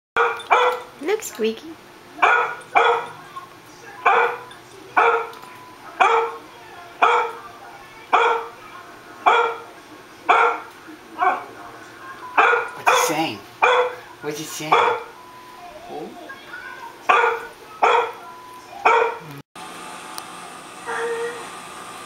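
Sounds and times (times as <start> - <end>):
dog barking: 0.2 - 0.9, 2.2 - 3.2, 4.0 - 6.4, 7.0 - 7.4, 8.1 - 8.6, 9.2 - 9.7, 10.3 - 11.5, 12.4 - 14.0, 14.7 - 15.2, 17.1 - 18.2, 18.8 - 19.2.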